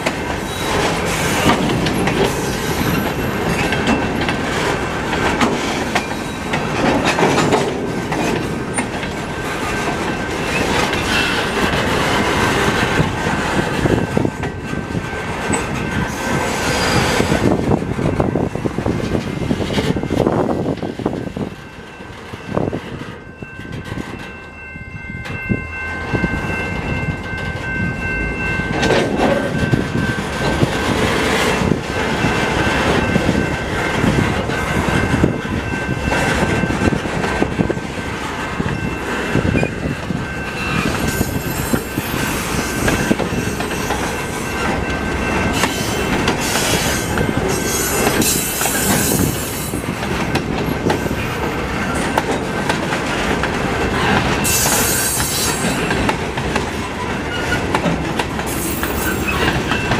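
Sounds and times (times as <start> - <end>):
train wheels rumbling on rails: 0.0 - 59.9
wheels squeaking and hissing: 10.4 - 12.4, 16.5 - 17.2, 45.6 - 49.8, 54.0 - 55.9, 58.5 - 59.9.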